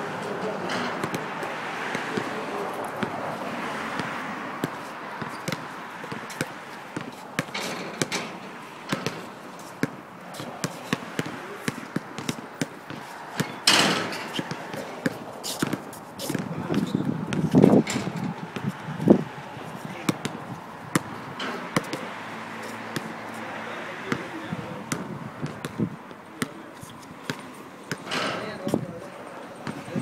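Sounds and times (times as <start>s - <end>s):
basketball bouncing on a court: 1.0s - 2.4s, 3.9s - 19.2s, 19.9s - 22.1s, 24.0s - 26.7s, 27.3s - 28.9s, 29.6s - 30.0s.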